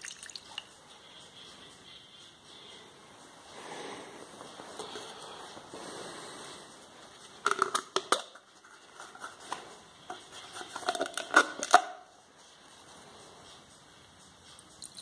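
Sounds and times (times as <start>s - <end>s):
plastic containers clicking and clattering: 7.4s - 9.6s, 10.5s - 12.0s.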